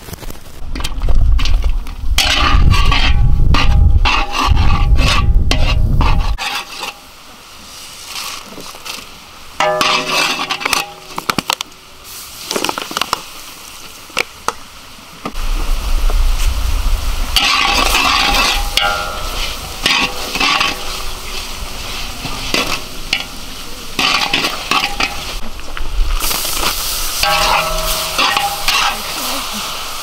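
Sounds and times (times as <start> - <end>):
heavy low rumble: 0.5 - 6.4, 15.4 - 28.7
cooking utensils scraping and clattering: 1.4 - 7.1, 9.6 - 11.6, 17.4 - 25.4, 26.2 - 29.8.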